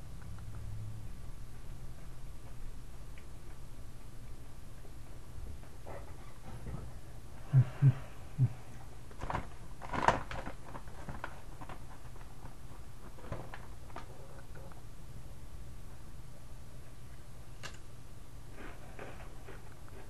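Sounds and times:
chip bag crinkling: 0:09.1 - 0:14.8.

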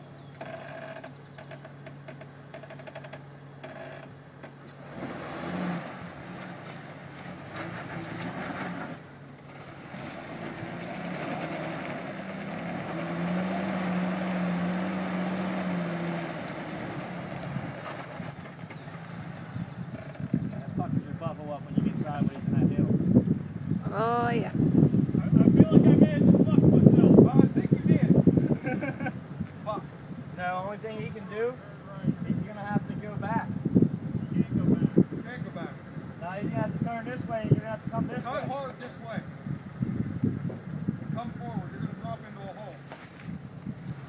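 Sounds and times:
engine revving under load: 0:04.6 - 0:20.8.

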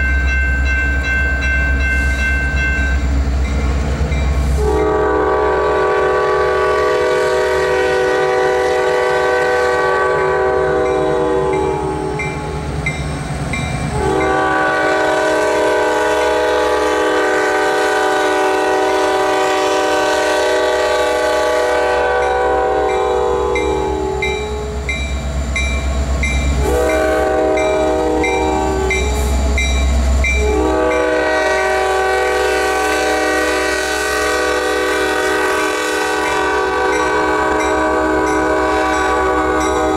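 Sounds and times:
diesel locomotive engine rumbling: 0:00.0 - 0:39.9
train air horn: 0:04.5 - 0:12.6, 0:13.9 - 0:24.9, 0:26.5 - 0:29.6, 0:30.4 - 0:39.9.

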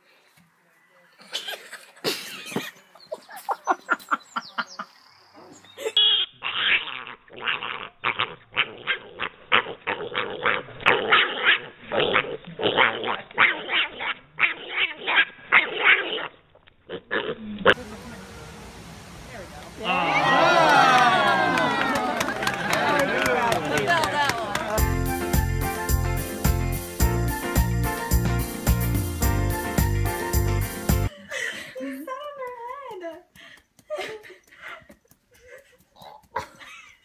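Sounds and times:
dog barking: 0:10.2 - 0:12.2.

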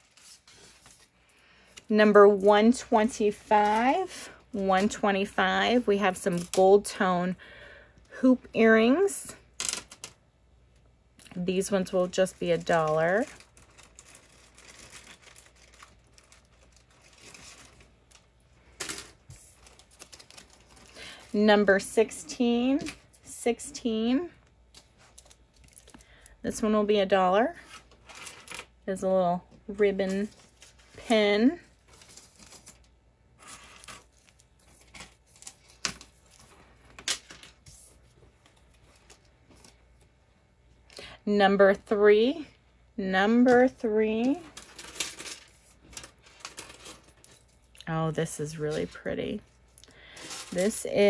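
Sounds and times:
jewelry rustling: 0:43.6 - 0:51.0.

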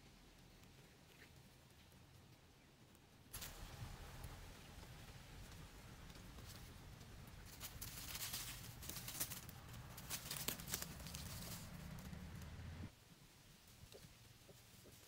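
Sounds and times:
bird flapping in dry leaves: 0:03.3 - 0:12.7.

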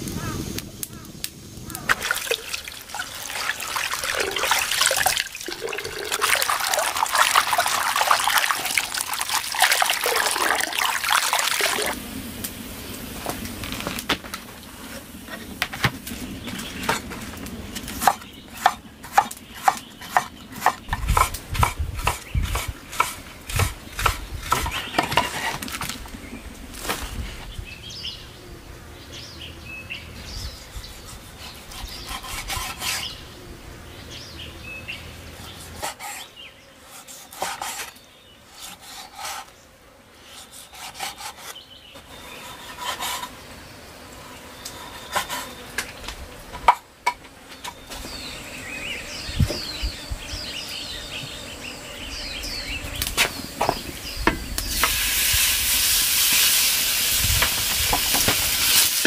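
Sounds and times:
tap water splashing into basin: 0:01.9 - 0:12.0
cleaver chopping on wooden board: 0:18.0 - 0:25.3.

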